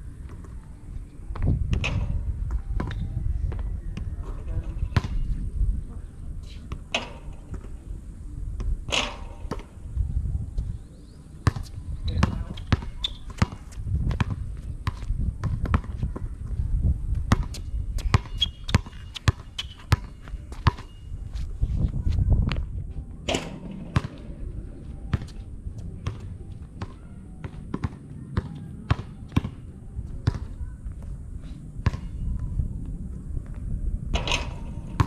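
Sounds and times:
basketball bouncing on concrete: 0:11.4 - 0:16.3, 0:17.2 - 0:20.9, 0:23.3 - 0:24.3, 0:26.0 - 0:29.6, 0:30.2 - 0:30.6, 0:31.8 - 0:32.5.

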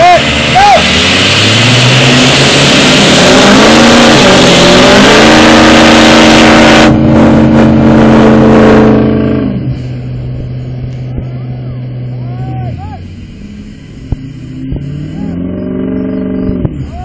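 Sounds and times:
dirt and gravel spraying: 0:00.0 - 0:06.6, 0:09.7 - 0:11.2, 0:11.8 - 0:15.4
tires spinning in dirt: 0:00.0 - 0:17.0
truck engine revving: 0:00.0 - 0:17.0.

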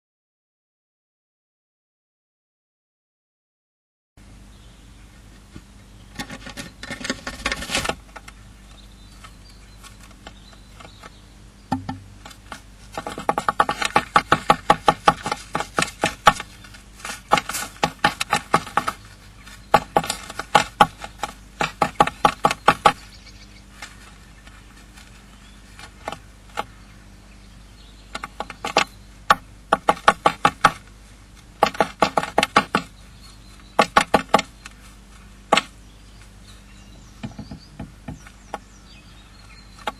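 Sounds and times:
bird beak tapping on wood: 0:09.9 - 0:19.1, 0:19.7 - 0:23.0, 0:28.1 - 0:30.8, 0:31.6 - 0:32.9, 0:33.6 - 0:34.8, 0:37.2 - 0:38.7.

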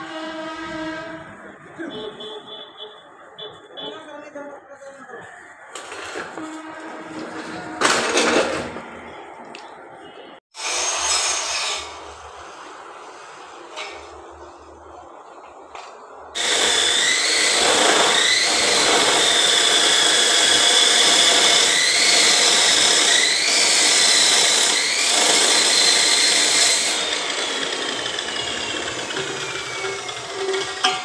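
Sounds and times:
cut-off saw cutting steel pipe: 0:10.6 - 0:12.2, 0:16.4 - 0:31.0
saw motor whine: 0:16.4 - 0:31.0.

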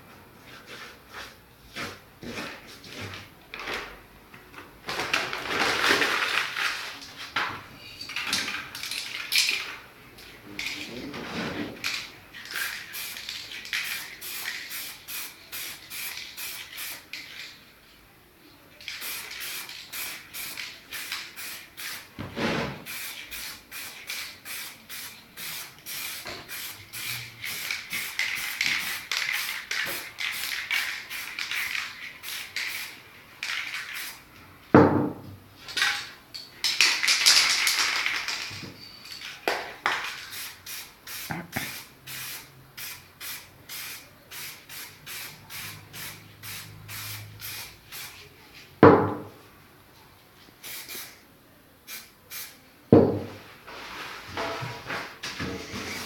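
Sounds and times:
spray paint can hissing: 0:11.8 - 0:17.4, 0:18.8 - 0:22.1, 0:22.8 - 0:34.3, 0:39.9 - 0:48.2, 0:50.6 - 0:51.2, 0:51.9 - 0:52.6.

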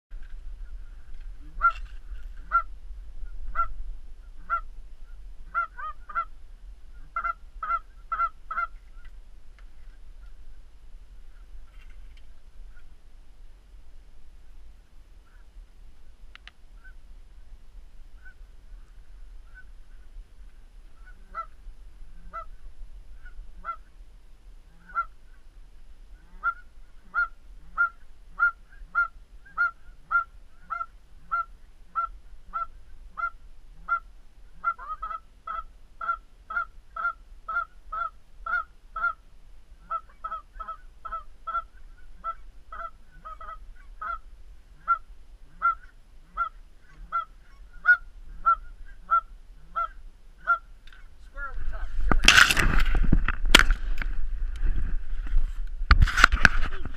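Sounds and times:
low rumble: 0:00.1 - 0:28.4, 0:39.3 - 0:56.9
goose honking: 0:00.6 - 0:09.1, 0:18.2 - 0:20.1, 0:20.9 - 0:23.9, 0:24.6 - 0:25.4, 0:26.1 - 0:39.2, 0:39.8 - 0:51.8.

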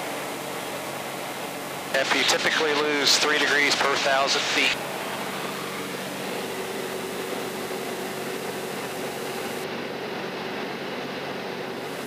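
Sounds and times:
aircraft engine and propeller drone: 0:00.0 - 0:12.0.

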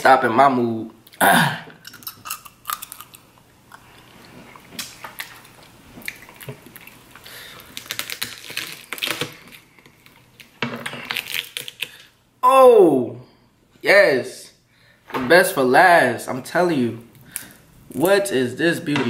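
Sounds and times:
crab shells cracking: 0:01.8 - 0:04.0, 0:04.8 - 0:12.2
close chewing: 0:01.8 - 0:10.1.

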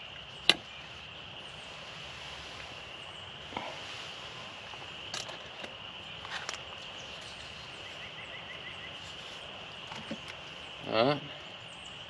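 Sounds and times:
chorus of small calling animals: 0:00.0 - 0:12.0
camp cookware clicking: 0:00.4 - 0:00.6.

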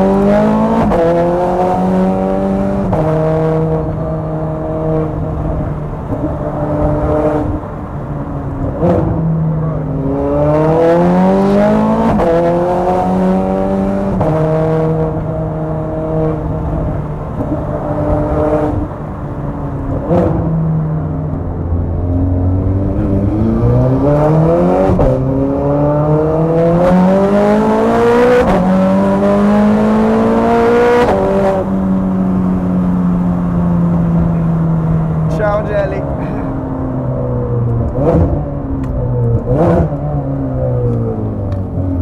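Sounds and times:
sports car engine revving through gears: 0:00.0 - 0:07.8, 0:08.5 - 0:19.0, 0:19.8 - 0:42.0.

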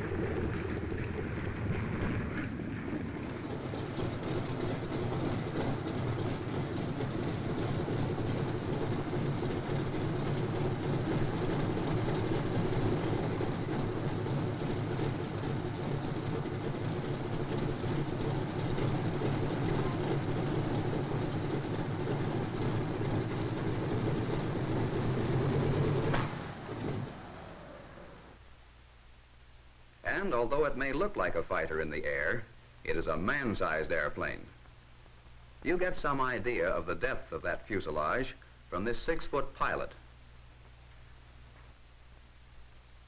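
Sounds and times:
radial aircraft engine running rough: 0:00.0 - 0:28.4.

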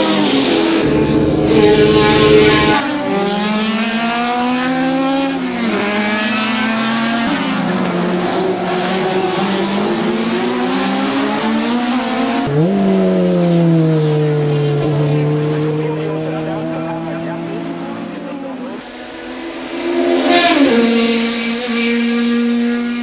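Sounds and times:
racing car engine accelerating: 0:00.0 - 0:23.0
another engine note: 0:00.7 - 0:02.9, 0:12.5 - 0:18.8.

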